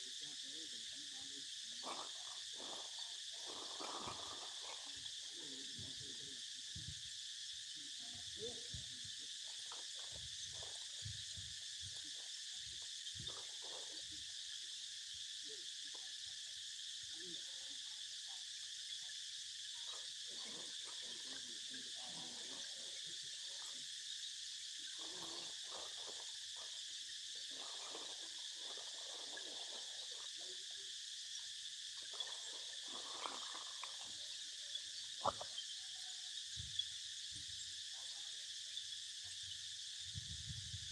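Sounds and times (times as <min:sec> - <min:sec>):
high insect chorus: 0:00.0 - 0:40.9.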